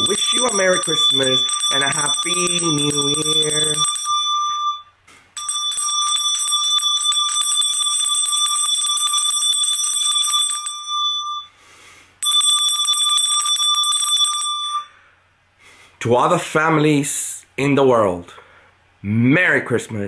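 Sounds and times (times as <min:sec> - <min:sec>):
handbell ringing rapidly: 0:00.0 - 0:04.6, 0:05.4 - 0:11.2.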